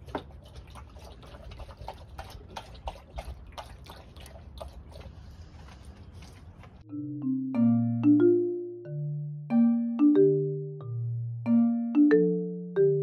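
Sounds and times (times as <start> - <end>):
dog lapping water: 0.0 - 6.8.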